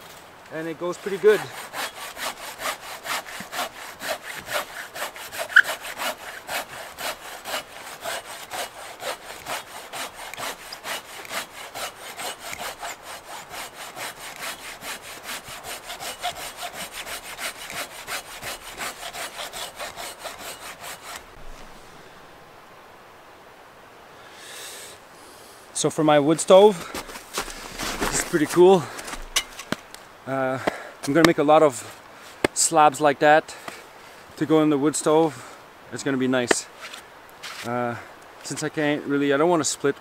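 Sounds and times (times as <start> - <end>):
hand saw cutting through log: 0.5 - 21.4, 36.5 - 37.7.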